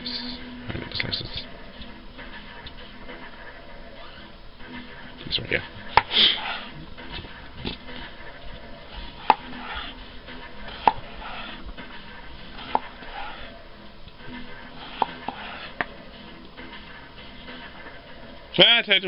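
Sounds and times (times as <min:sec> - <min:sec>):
knife cutting potatoes: 0:09.0 - 0:10.0, 0:10.7 - 0:11.6, 0:14.8 - 0:15.8.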